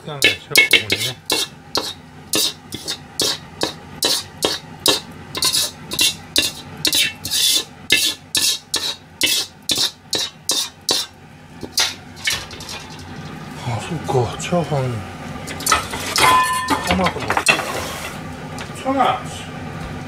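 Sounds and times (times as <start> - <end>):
metal ladle scraping in wok: 0.2 - 13.4, 15.5 - 18.2.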